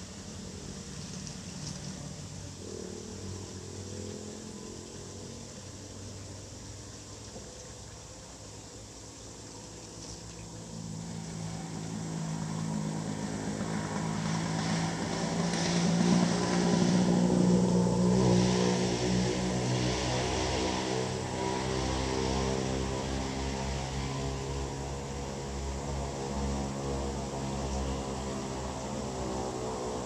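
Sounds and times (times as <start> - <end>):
passing vehicle engine: 10.6 - 30.0.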